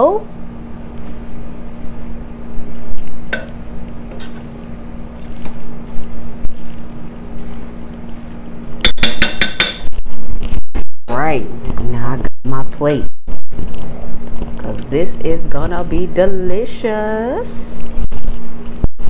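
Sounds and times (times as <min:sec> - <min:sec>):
metal spoon scraping pot: 0:04.1 - 0:04.6.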